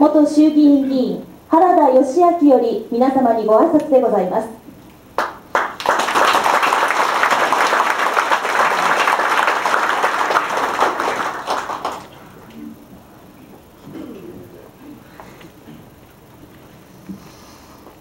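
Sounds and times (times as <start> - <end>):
audience applauding: 5.2 - 12.2.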